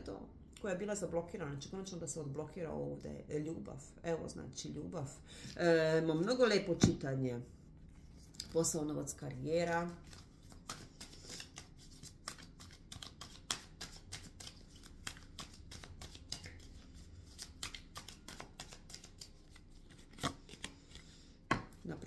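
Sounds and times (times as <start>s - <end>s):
cards being shuffled: 9.9s - 21.8s.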